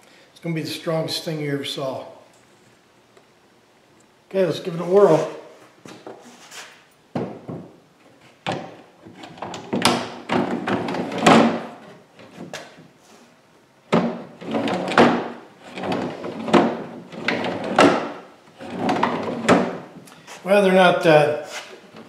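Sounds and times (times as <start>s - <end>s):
drawer sliding rattles: 8.5s - 12.6s, 13.9s - 19.9s.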